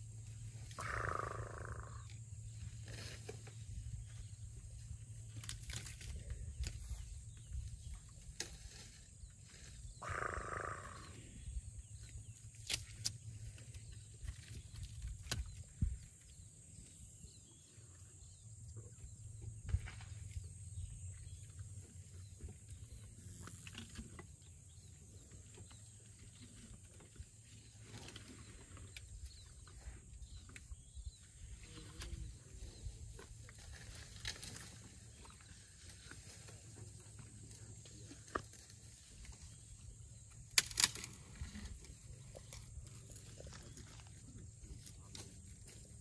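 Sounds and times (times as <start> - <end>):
twigs snapping: 40.5 - 41.2.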